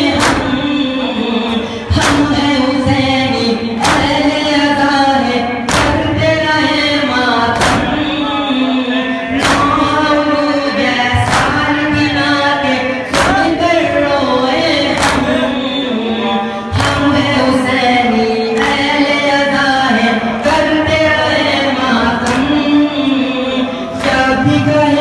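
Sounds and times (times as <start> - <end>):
men singing a lament: 0.0 - 25.0
chest-beating slaps: 5.7 - 6.1.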